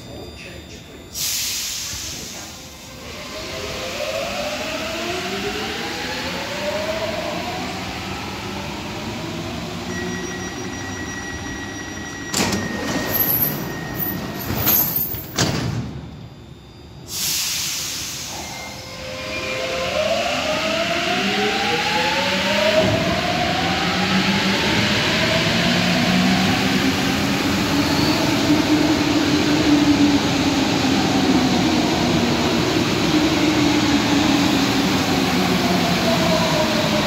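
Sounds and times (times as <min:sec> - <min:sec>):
steady warning tone: 0:00.0 - 0:37.0
train doors clunking shut: 0:12.1 - 0:16.1.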